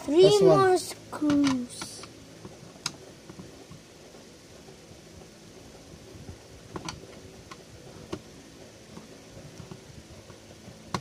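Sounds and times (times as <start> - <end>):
low room noise: 0.0 - 11.0.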